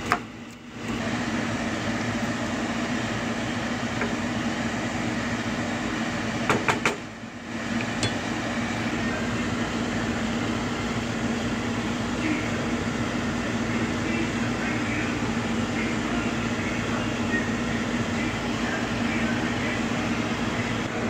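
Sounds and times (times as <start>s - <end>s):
mechanical hum: 0.0s - 21.0s.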